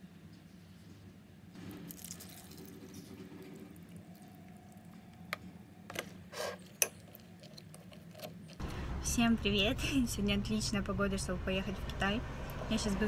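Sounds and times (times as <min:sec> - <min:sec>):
milk pouring into a bowl: 0:01.7 - 0:04.8.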